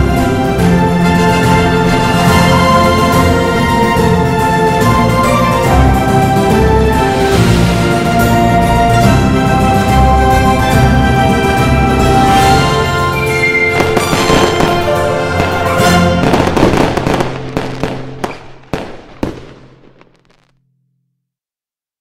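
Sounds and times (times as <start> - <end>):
music: 0.0 - 21.2
fireworks bursting and crackling: 12.4 - 20.6
sharp firework bangs: 13.7 - 20.5.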